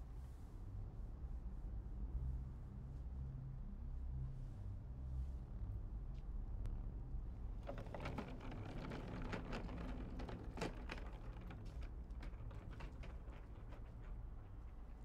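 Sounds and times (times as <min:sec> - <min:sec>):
suitcase wheels rattling over paving: 0:07.6 - 0:15.0.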